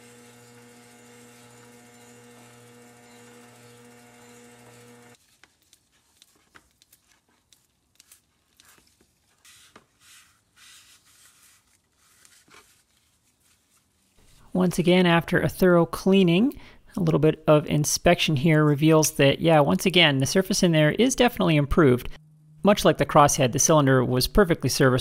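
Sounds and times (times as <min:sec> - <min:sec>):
metal lathe humming: 0:00.0 - 0:05.2.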